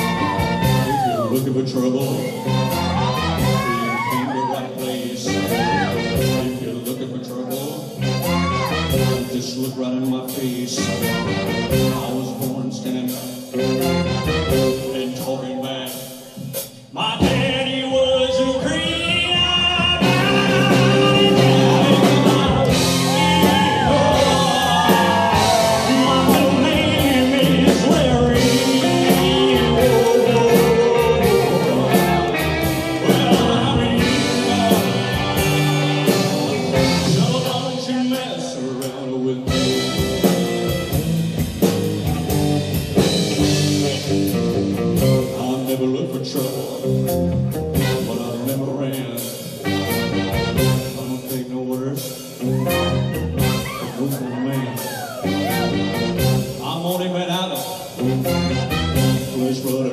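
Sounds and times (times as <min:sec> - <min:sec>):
man singing lead vocal: 0:00.0 - 0:40.7, 0:43.0 - 0:59.9
bass guitar: 0:00.0 - 0:59.9
drums: 0:00.0 - 0:59.9
electric guitars: 0:19.8 - 0:38.9, 0:52.4 - 0:56.6.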